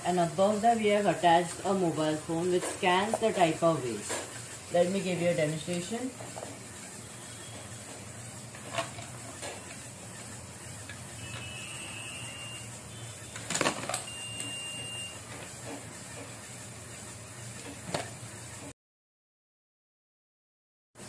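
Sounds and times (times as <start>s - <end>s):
motor whirring: 0.4s - 16.4s
motor high whines: 3.1s - 17.6s.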